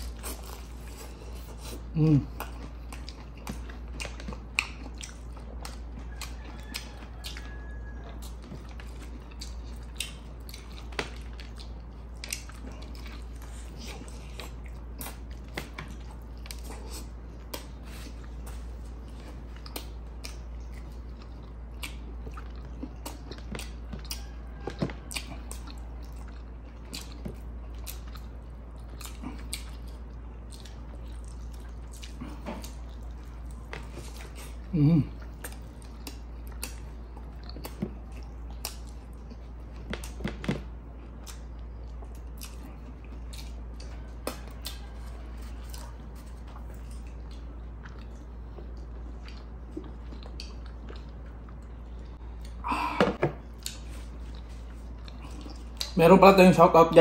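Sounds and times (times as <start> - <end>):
person chewing food: 0.0 - 56.3
steady low hum: 0.0 - 57.0.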